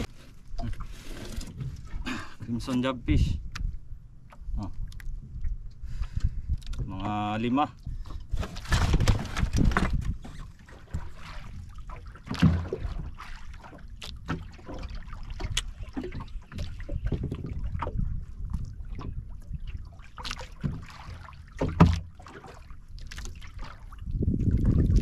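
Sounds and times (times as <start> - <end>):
wind buffeting microphone: 3.0 - 12.0, 14.9 - 20.0, 23.8 - 25.0
water slapping against boat hull: 3.5 - 25.0.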